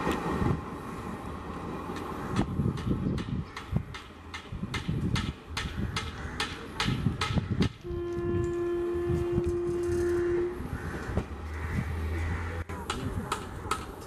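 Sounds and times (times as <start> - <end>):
train rumble and clatter: 0.0 - 14.0
locomotive horn: 7.8 - 11.0.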